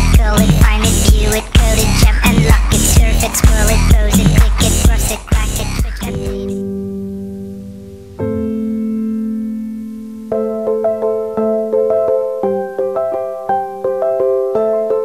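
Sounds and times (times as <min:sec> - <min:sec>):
held music chord: 0:06.1 - 0:15.0.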